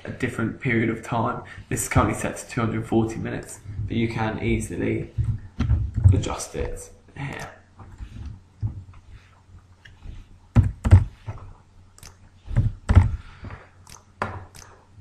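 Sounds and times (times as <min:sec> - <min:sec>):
computer keyboard keystrokes: 0:10.6 - 0:11.1.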